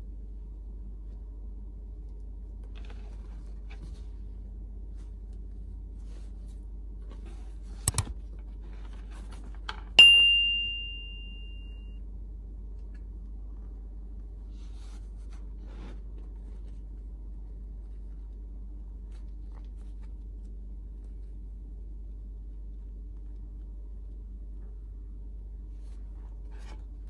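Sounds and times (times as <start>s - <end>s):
low steady hum: 0.0s - 27.0s
sharp clicks: 7.8s - 8.2s
bright ding: 10.0s - 12.0s.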